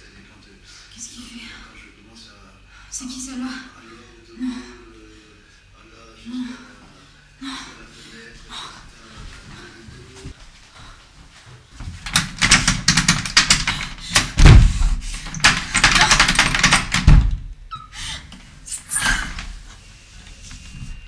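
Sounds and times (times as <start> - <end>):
heavy thumps on door: 11.8 - 17.5
door rattling against its frame: 11.9 - 17.5.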